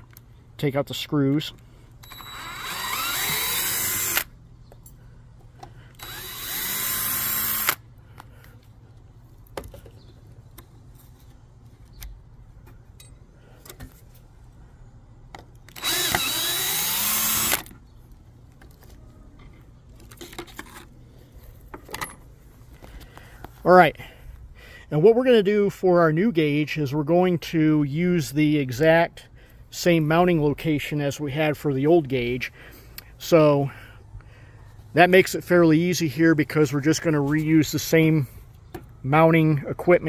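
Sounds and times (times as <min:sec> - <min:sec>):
drill backing out screws: 0:02.0 - 0:04.3, 0:06.0 - 0:07.8, 0:15.7 - 0:17.7.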